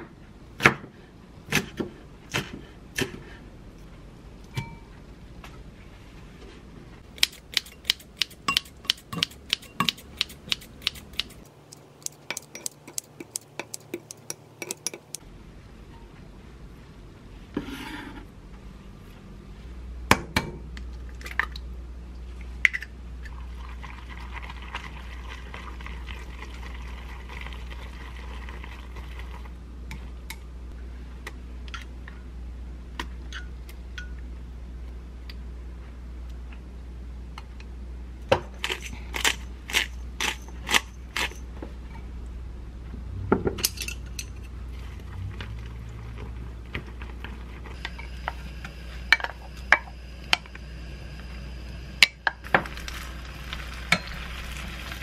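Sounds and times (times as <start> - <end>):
low steady hum: 0.0 - 55.0
soft stirring: 8.5 - 15.2
egg cracking taps: 11.2 - 15.2
utensil clinking against glass bowl: 12.0 - 15.2.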